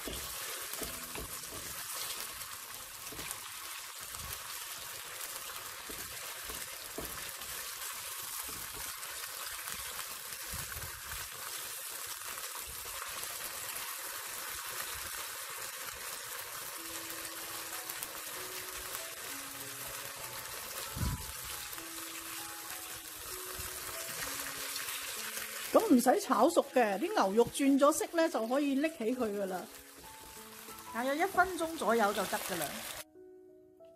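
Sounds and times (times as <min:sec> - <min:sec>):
chopsticks stirring meat: 0:00.0 - 0:10.2
meat sizzling in hot oil: 0:00.0 - 0:33.1.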